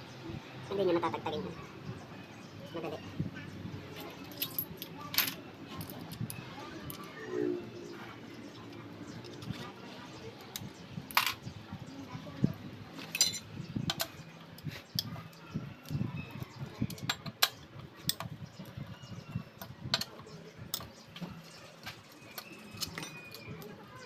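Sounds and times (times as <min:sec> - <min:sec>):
metal parts clinking: 0:04.0 - 0:07.0, 0:13.1 - 0:14.1.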